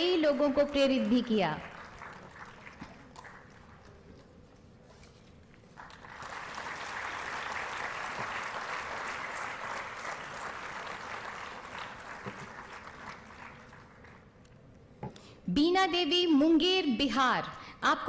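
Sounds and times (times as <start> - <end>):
audience applauding: 1.6 - 3.8, 5.8 - 14.2.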